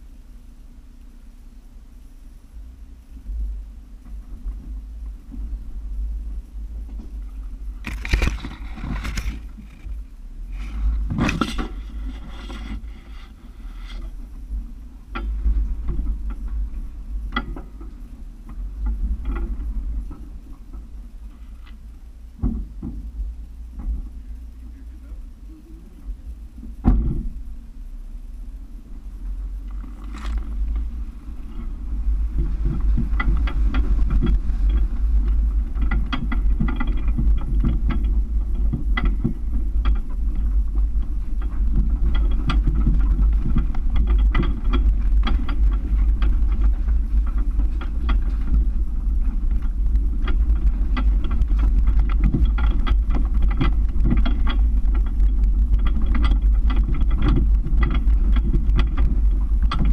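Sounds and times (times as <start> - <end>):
engine low rumble: 0.0 - 59.9
body and suspension knocks: 15.0 - 24.2, 26.6 - 27.5, 29.7 - 59.9.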